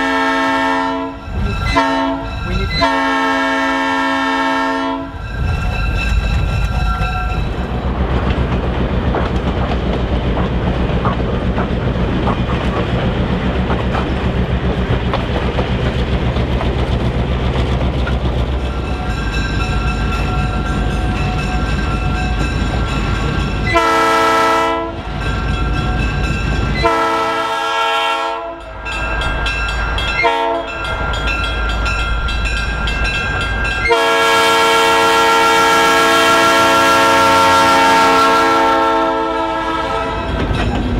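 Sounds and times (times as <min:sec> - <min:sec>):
train horn blasts: 0:00.0 - 0:05.2, 0:23.6 - 0:25.1, 0:26.8 - 0:28.7, 0:30.2 - 0:30.8, 0:33.8 - 0:40.4
diesel locomotive engine rumble: 0:00.0 - 0:40.9
train wheels clicking over rail joints: 0:05.1 - 0:23.9, 0:40.1 - 0:40.9.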